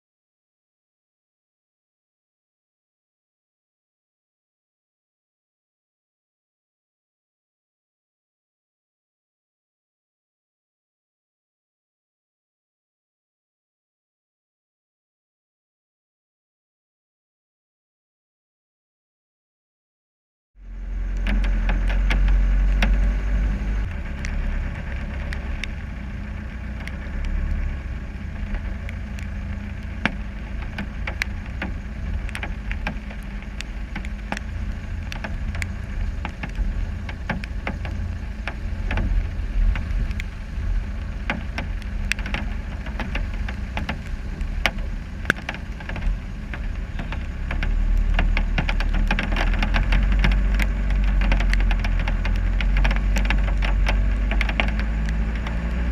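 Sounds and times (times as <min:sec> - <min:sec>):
diesel engine deep rumble: 0:20.6 - 0:55.9.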